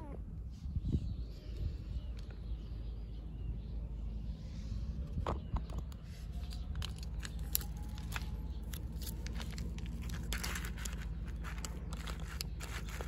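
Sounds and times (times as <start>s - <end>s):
plastic pouch crinkling: 6.4s - 13.0s.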